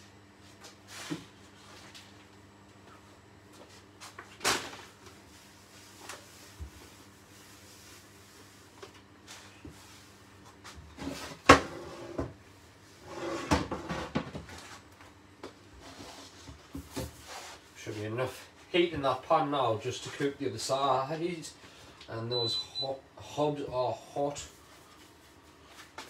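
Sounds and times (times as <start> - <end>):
low steady hum: 14.6 - 26.0.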